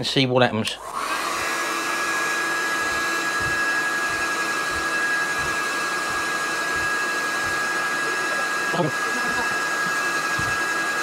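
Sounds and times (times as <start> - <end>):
heat gun fan whining: 0.6 - 11.0.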